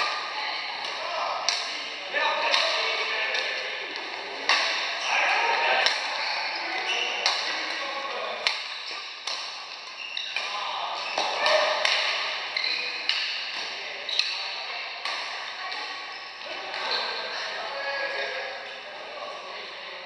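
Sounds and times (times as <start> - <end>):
rackets hitting shuttlecock: 0.8 - 1.8, 2.4 - 3.6, 4.4 - 5.0, 5.7 - 6.2, 7.1 - 7.8, 8.4 - 14.4, 15.0 - 16.0.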